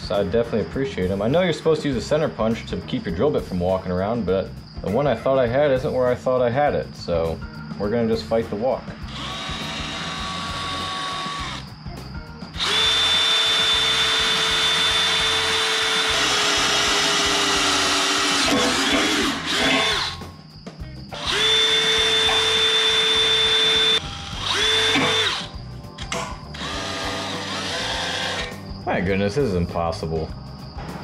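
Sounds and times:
cordless drill boring into steel: 0:09.1 - 0:11.6, 0:12.6 - 0:20.2, 0:21.2 - 0:25.5, 0:26.6 - 0:28.5.

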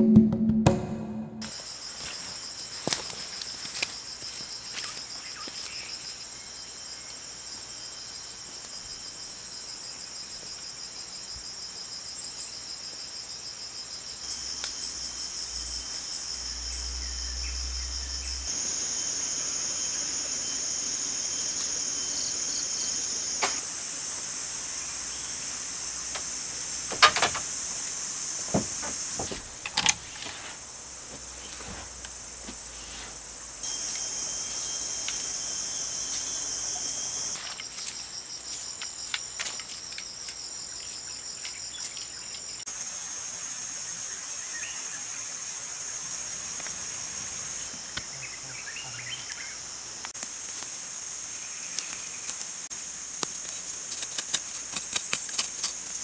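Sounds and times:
sharp knocks: 0:00.0 - 0:01.5
buzzing insect chorus: 0:01.4 - 0:56.0.

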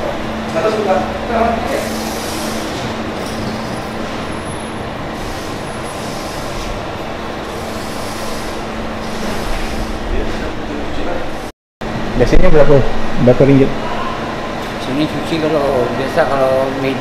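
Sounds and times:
machine hiss: 0:01.4 - 0:10.2.

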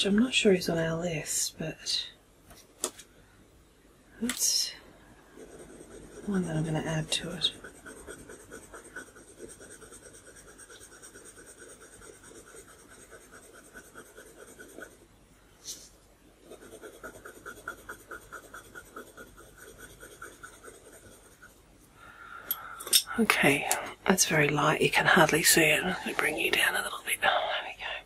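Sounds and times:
pencil scratching on paper: 0:05.3 - 0:15.0, 0:16.4 - 0:21.7.

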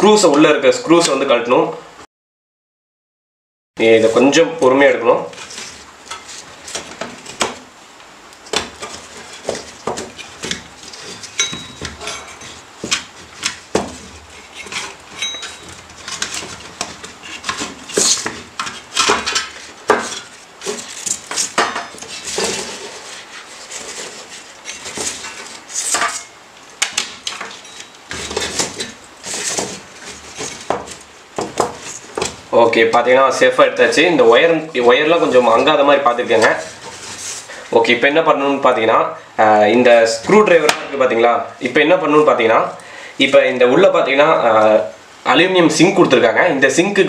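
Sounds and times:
metallic clinks and scrapes: 0:10.9 - 0:12.6, 0:14.4 - 0:16.5, 0:27.5 - 0:29.6.

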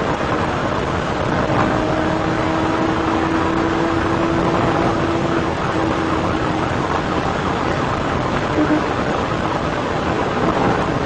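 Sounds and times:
car road and wind noise: 0:00.0 - 0:11.0
steady tone: 0:01.0 - 0:09.4.

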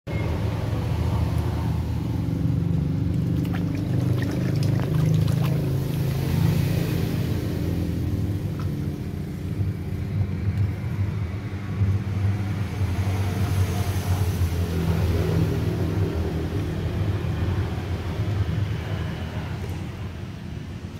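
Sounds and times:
water splashing in a basin: 0:02.8 - 0:09.0.

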